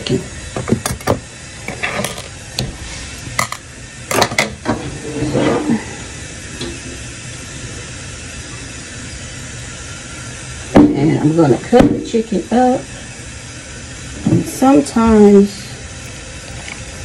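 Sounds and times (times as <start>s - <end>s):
kitchen items clattering on countertop: 0.7s - 2.3s, 3.4s - 4.6s.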